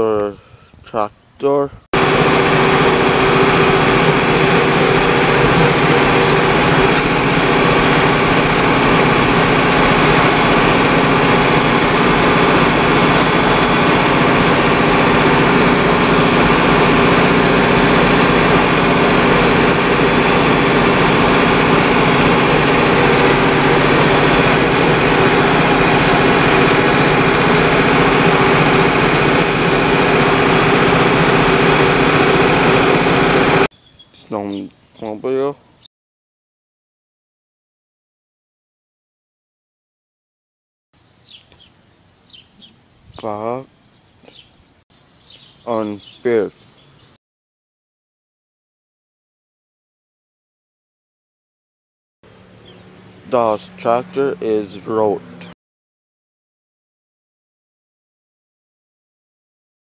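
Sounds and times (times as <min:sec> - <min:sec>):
tractor engine running: 0:02.0 - 0:33.7, 0:52.3 - 0:55.6.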